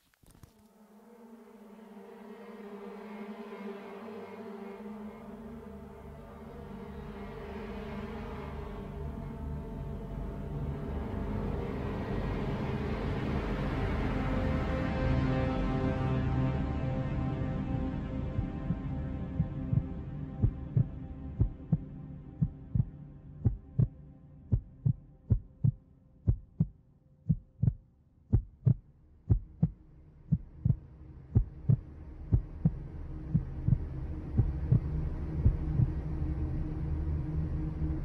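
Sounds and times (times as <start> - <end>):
background music: 0.5 - 38.0
low rumbling drone: 1.0 - 38.0
heartbeat double thumps: 19.4 - 30.8, 31.4 - 35.9.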